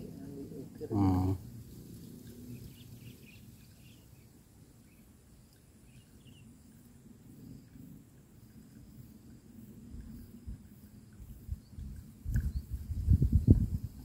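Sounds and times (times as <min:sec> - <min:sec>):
faint bird chirps: 0:02.4 - 0:06.8.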